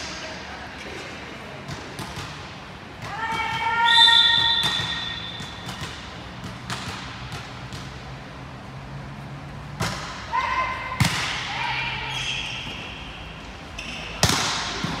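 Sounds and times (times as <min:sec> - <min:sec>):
volleyball sharp smacks: 0:04.4 - 0:08.0, 0:09.8 - 0:10.2, 0:14.2 - 0:15.0.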